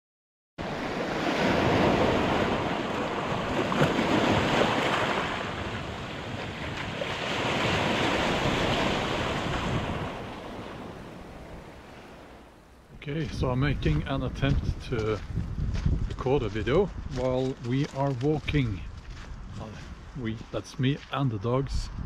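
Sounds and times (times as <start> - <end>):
waves breaking on pebbly shore: 0.6 - 12.4
wind: 0.6 - 22.0.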